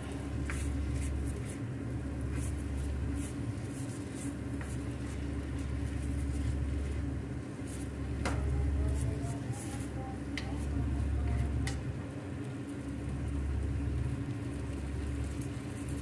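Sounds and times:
low mechanical hum: 0.0s - 16.0s
spatula scraping frying pan: 2.2s - 7.0s.

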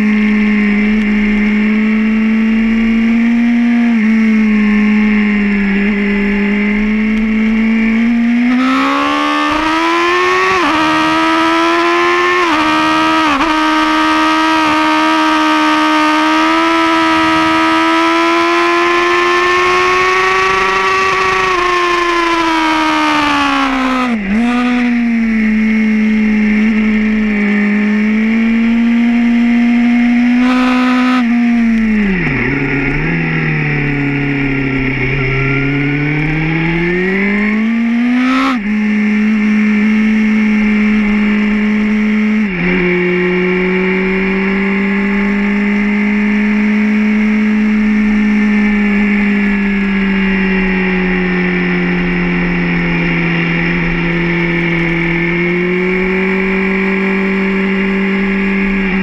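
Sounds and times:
motorcycle engine revving hard: 0.0s - 59.0s.

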